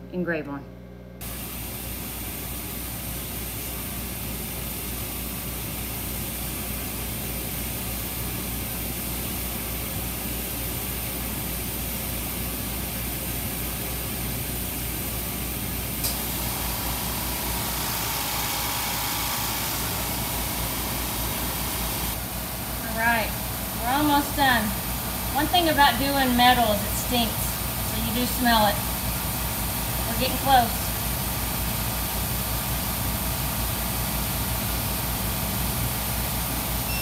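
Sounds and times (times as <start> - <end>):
air compressor running: 1.2 - 37.0
laser engraver hum and hiss: 1.2 - 37.0
click: 16.0 - 16.2.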